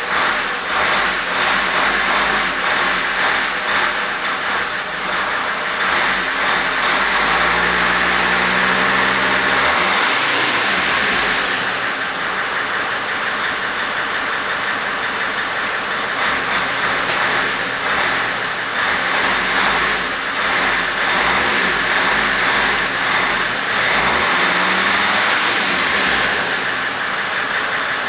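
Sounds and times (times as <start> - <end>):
diesel engine revving: 0.0 - 28.0
loud rushing hiss: 7.4 - 12.3.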